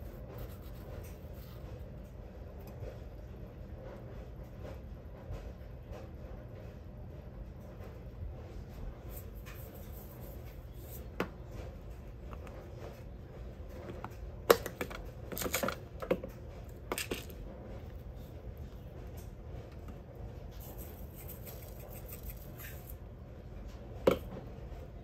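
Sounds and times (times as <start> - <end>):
low steady hum: 0.0 - 25.0
kitchen items clicking and clattering: 9.1 - 18.0.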